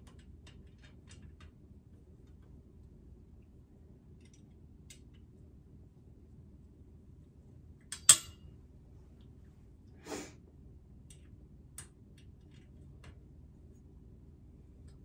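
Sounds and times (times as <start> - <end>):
person breathing: 10.0 - 10.4.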